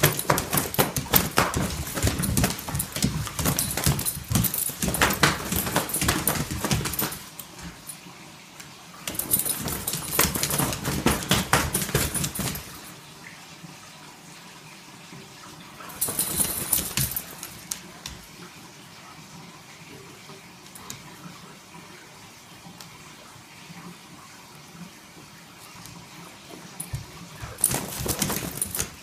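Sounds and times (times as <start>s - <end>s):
dog claws scrabbling on wood floor: 0.0s - 7.9s, 9.1s - 12.9s, 15.9s - 18.2s, 26.8s - 29.0s
collar tags jingling: 0.0s - 8.0s, 9.1s - 13.0s, 15.8s - 17.7s, 26.8s - 29.0s.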